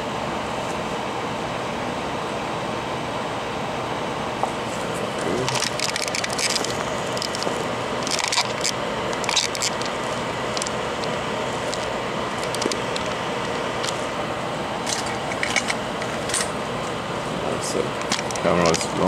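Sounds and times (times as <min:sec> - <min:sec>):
steady airy hiss: 0:00.0 - 0:19.0
crackling clicks: 0:05.4 - 0:14.0, 0:18.0 - 0:19.0.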